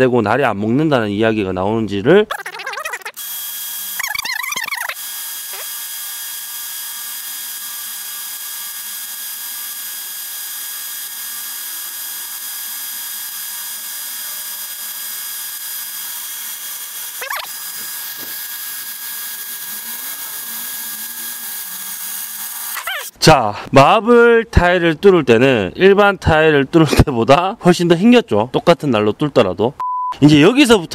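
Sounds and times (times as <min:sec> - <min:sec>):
electric drill grinding into tile: 0:02.4 - 0:23.1.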